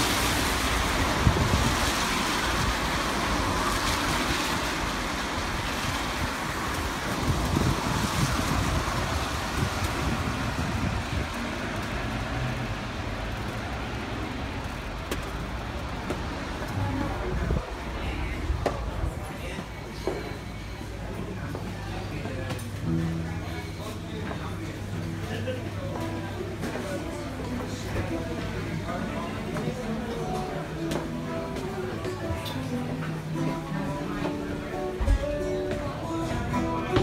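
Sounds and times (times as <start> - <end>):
cars passing on wet road: 0.0 - 19.3
wind buffeting microphone: 6.2 - 11.8.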